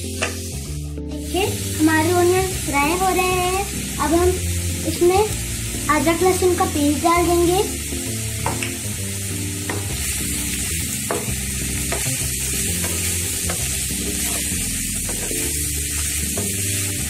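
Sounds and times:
onions sizzling in oil: 0:00.0 - 0:17.0
spatula scraping and knocking pan: 0:09.6 - 0:10.1, 0:11.0 - 0:16.6.

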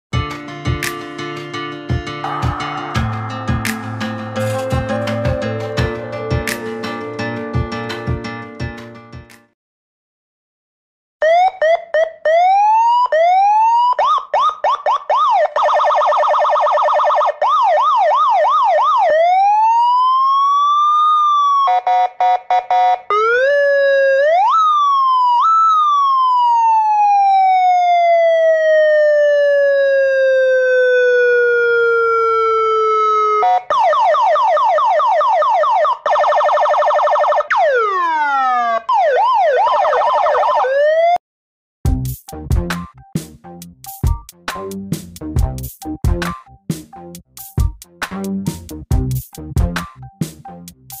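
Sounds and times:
electronic police siren: 0:11.2 - 0:41.2.

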